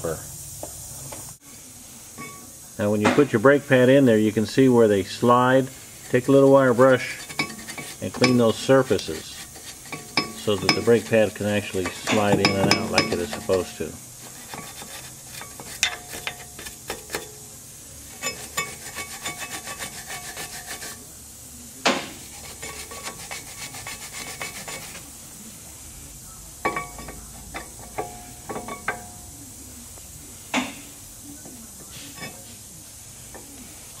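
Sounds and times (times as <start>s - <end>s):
wire brush scrubbing metal: 2.2s - 21.2s, 22.0s - 29.7s, 32.0s - 34.0s
metal clinks: 26.6s - 29.3s.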